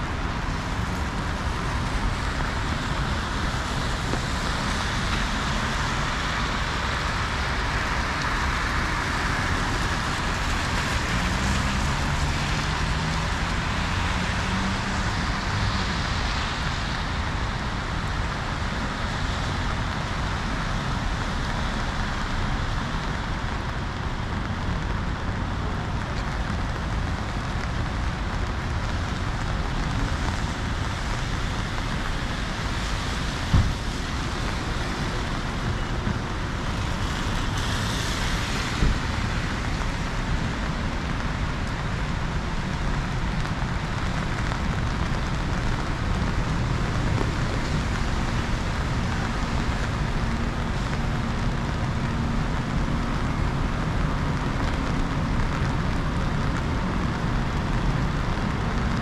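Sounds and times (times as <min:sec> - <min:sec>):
steady rain: 0:00.0 - 0:59.0
traffic on wet streets: 0:00.0 - 0:59.0.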